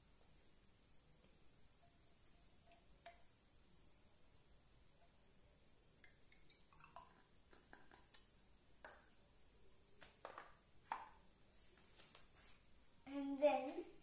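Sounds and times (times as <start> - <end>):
plastic labware clicks and taps: 10.0 - 11.2.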